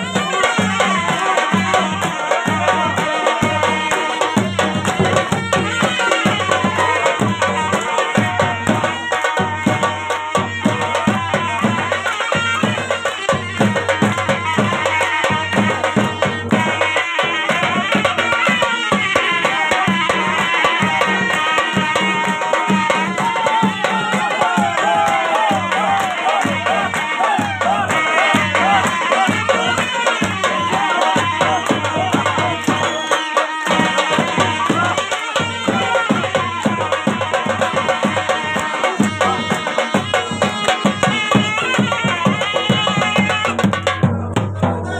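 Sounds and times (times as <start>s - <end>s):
drums beating fast rhythm: 0.0s - 44.9s.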